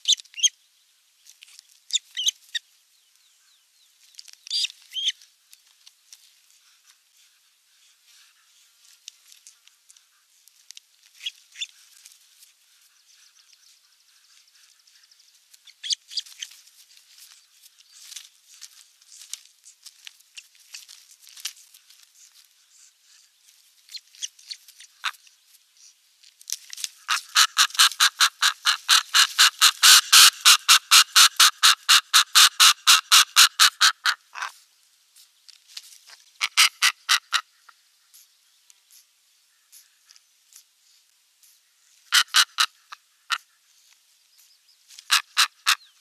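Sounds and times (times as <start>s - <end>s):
faint clicks and chirps: 4.0s - 6.2s, 38.0s - 41.6s.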